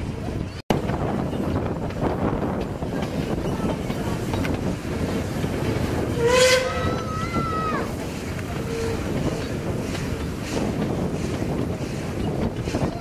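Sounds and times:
train rumbling and clattering on rails: 0:00.0 - 0:13.0
steam locomotive whistle: 0:06.1 - 0:07.4.

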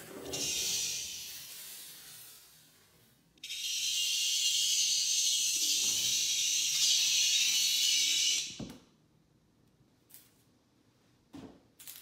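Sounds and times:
cicada distress buzz: 0:03.5 - 0:08.4.

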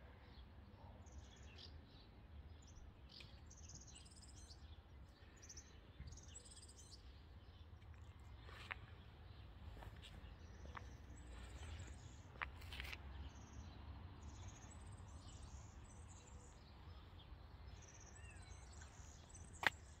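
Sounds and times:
small birds chirping: 0:00.1 - 0:20.0.

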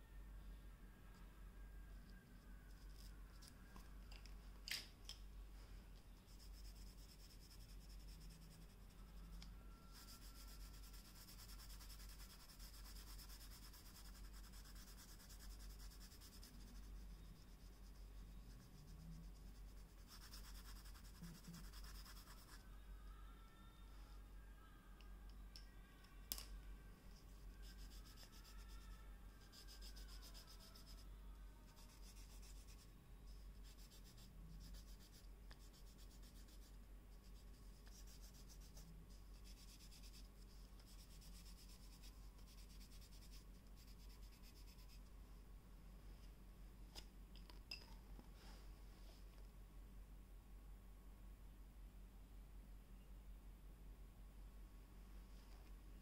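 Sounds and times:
pencil scratching on paper: 0:06.2 - 0:22.6, 0:29.4 - 0:31.0, 0:31.7 - 0:45.0.

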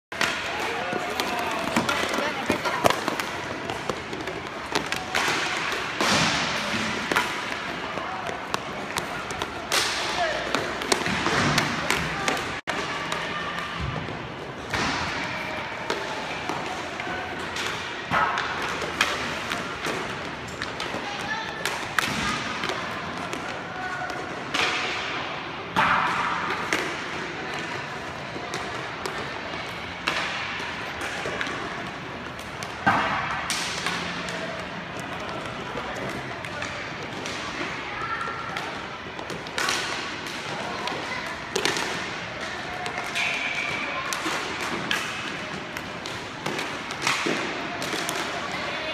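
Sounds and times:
steady background noise: 0:00.1 - 0:48.9
skate wheels rolling: 0:00.2 - 0:09.7
sticks and puck clattering on tiles: 0:00.2 - 0:12.4
hockey sticks and puck knocking: 0:00.2 - 0:15.2, 0:15.8 - 0:37.8, 0:38.4 - 0:48.6.

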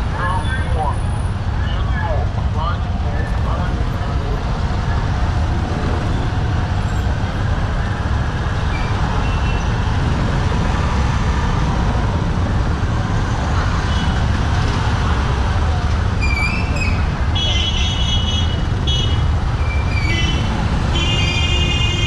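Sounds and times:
street traffic rumble: 0:00.0 - 0:22.0.

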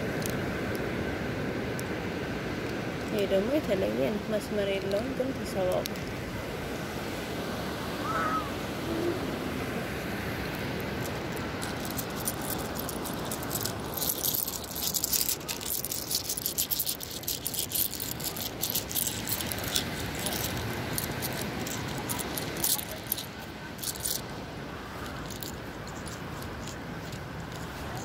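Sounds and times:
seashells clinking in a hand: 0:10.5 - 0:24.3, 0:25.0 - 0:28.0.

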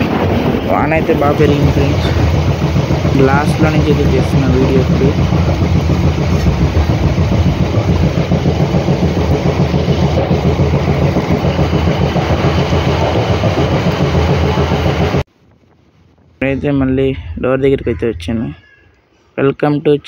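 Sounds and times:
train wheels rumbling on rails: 0:00.0 - 0:15.3.

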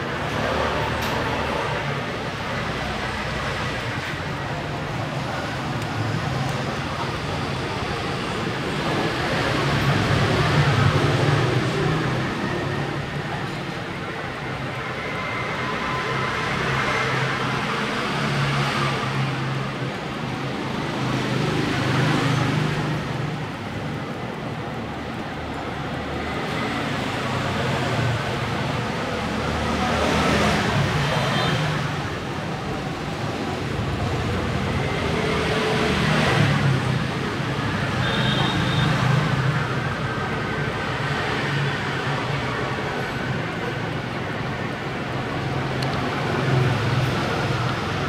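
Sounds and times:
road traffic noise: 0:00.0 - 0:48.0.

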